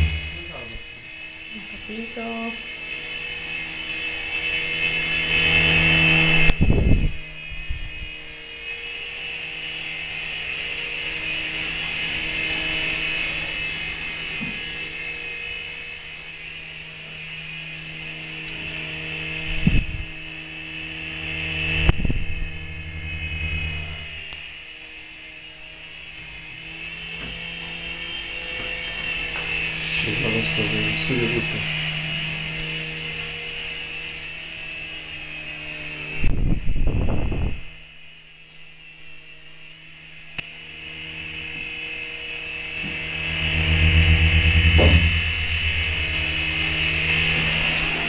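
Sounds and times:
model helicopter rotors whining: 0:00.0 - 0:48.0
sharp knocks: 0:44.5 - 0:46.3.

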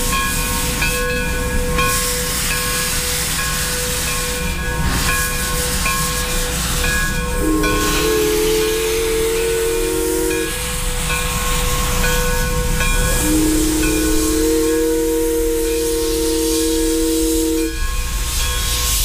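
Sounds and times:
escaping steam hiss: 0:00.0 - 0:19.0
steam whistle blast: 0:07.2 - 0:18.3.

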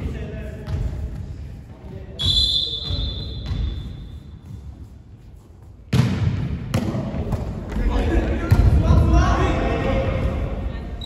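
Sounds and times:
referee's whistle blast: 0:02.2 - 0:03.9.

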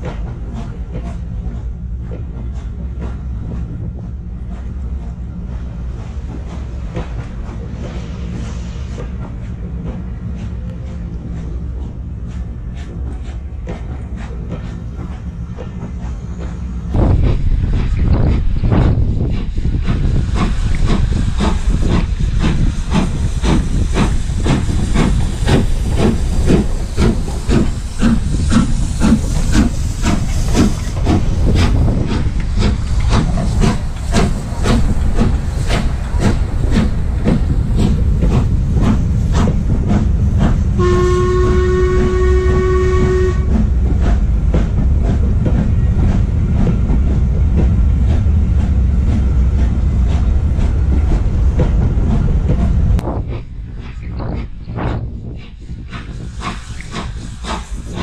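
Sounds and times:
steam locomotive chuffing: 0:00.0 - 0:58.0
steam whistle blast: 0:40.8 - 0:43.5.

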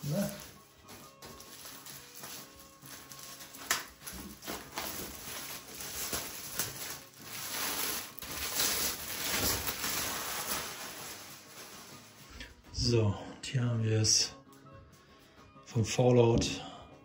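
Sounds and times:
plastic film crackling: 0:00.0 - 0:12.5.

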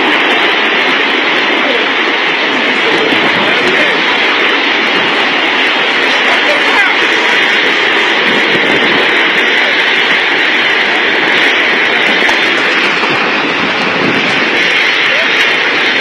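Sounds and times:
tornado winds roaring: 0:00.0 - 0:16.0.

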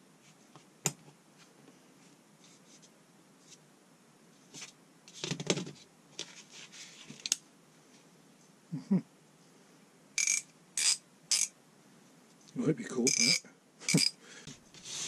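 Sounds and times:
metal parts scraping and clicking: 0:10.2 - 0:11.5, 0:13.1 - 0:14.2.

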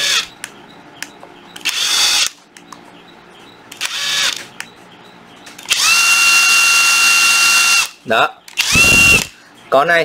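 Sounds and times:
impact driver whine: 0:05.7 - 0:08.0, 0:08.6 - 0:09.4.

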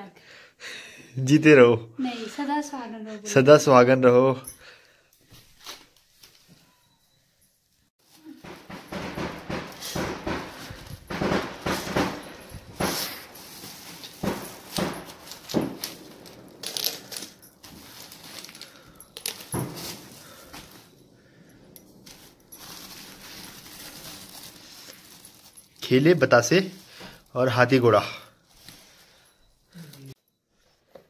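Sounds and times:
plastic bag crinkling: 0:09.7 - 0:29.2.

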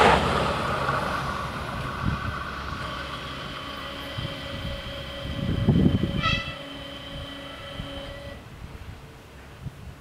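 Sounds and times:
wind rumble on microphone: 0:00.0 - 0:10.0
level crossing whine: 0:01.4 - 0:08.5.

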